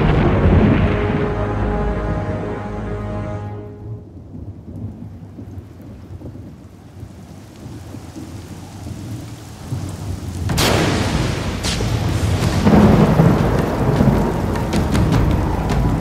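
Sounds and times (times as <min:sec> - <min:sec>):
low rolling thunder: 0:00.0 - 0:02.9, 0:03.9 - 0:16.0
music score: 0:00.0 - 0:04.2
rain falling: 0:00.0 - 0:16.0.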